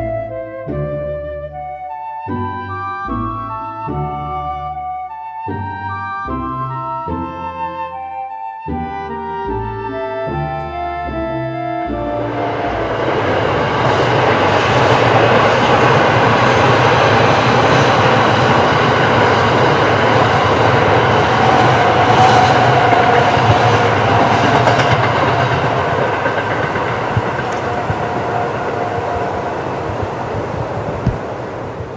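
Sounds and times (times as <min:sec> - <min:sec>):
electric train passing at speed: 0:09.2 - 0:31.9.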